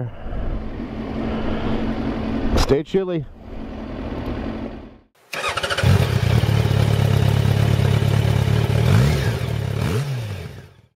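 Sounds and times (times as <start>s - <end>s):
motorcycle engine running: 5.4s - 10.9s.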